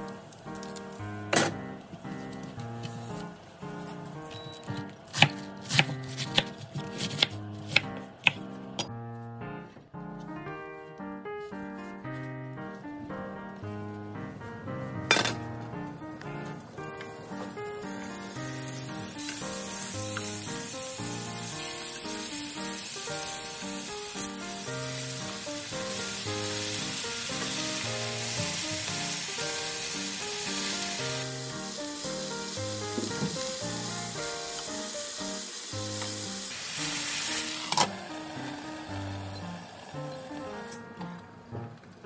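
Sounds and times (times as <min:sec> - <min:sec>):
food sizzling in a frying pan: 0:17.2 - 0:40.6.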